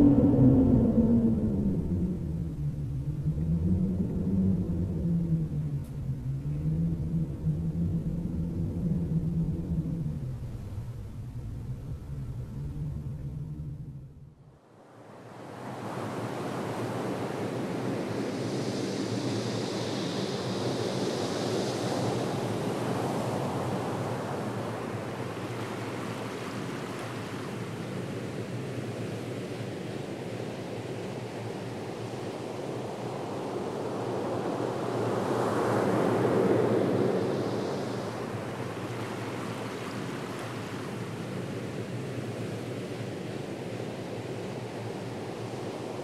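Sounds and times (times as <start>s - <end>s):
wind: 0.0s - 46.0s
sea surf: 15.0s - 46.0s.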